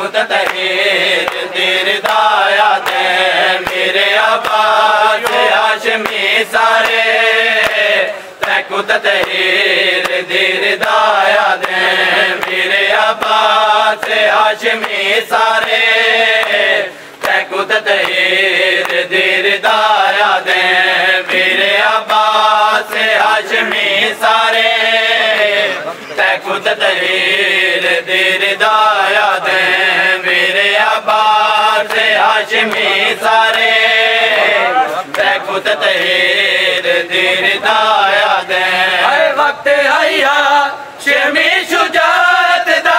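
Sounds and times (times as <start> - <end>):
man chanting a lament: 0.0 - 12.9, 21.3 - 41.2
hands slapping chests: 0.3 - 10.2, 10.8 - 15.0.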